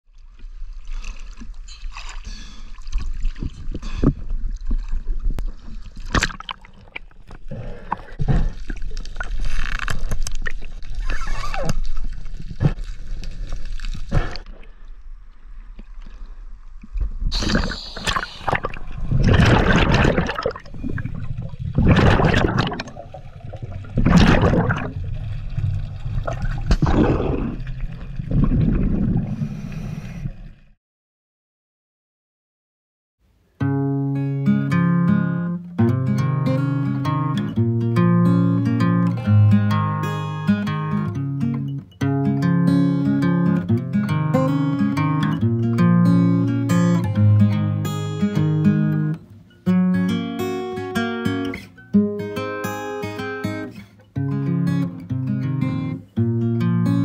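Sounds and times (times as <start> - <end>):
water splashes: 0.1 - 30.6
seawater sloshing and gurgling: 0.2 - 14.8, 17.3 - 30.6
surges of bubbling water: 0.8 - 13.2, 17.3 - 30.6.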